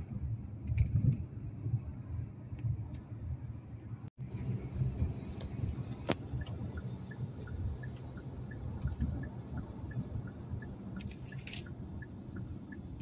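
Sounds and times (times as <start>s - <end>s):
car road and engine rumble: 0.0s - 13.0s
faint regular ticking: 6.3s - 13.0s.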